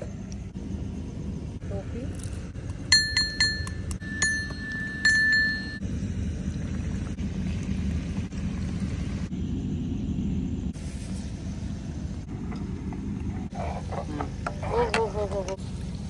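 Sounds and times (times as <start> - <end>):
metal pestle striking brass mortar: 2.9 - 5.8
steady hiss: 10.8 - 12.3.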